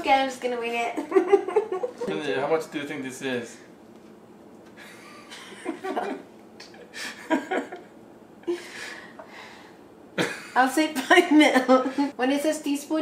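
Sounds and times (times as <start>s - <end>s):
man and woman laughing: 1.0s - 2.2s, 4.8s - 9.0s, 10.2s - 12.1s.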